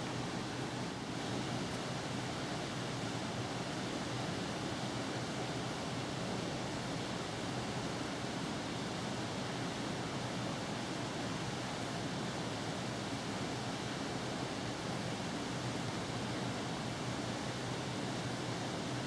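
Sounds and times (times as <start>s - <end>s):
room noise hiss: 0.0s - 19.0s.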